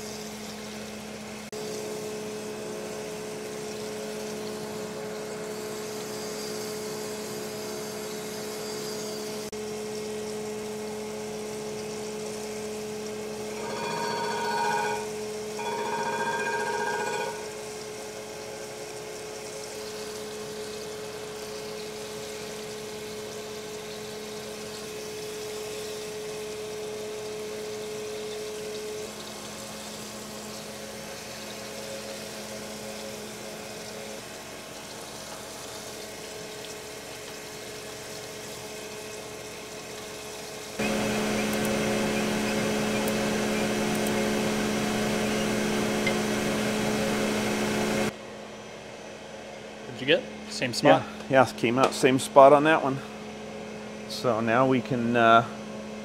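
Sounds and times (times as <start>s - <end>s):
coolant hissing: 0.0s - 14.6s, 17.6s - 48.2s
grinding machine hum: 13.2s - 17.8s, 40.8s - 48.2s.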